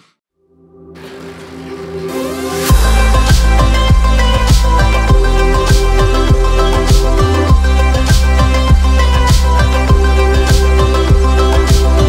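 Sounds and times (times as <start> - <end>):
electronic music with heavy bass: 1.0 - 12.0
deep kick drum: 2.7 - 12.0.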